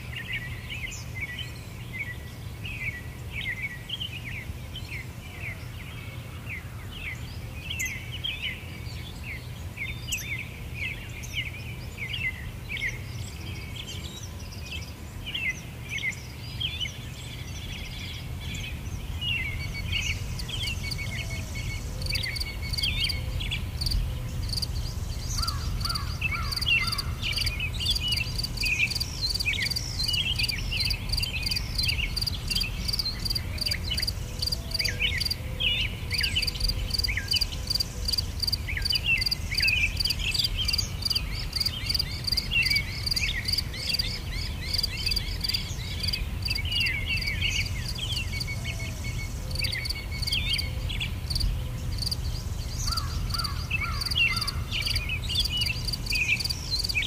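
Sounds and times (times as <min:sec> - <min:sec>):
flock of birds calling: 0:19.2 - 0:57.0.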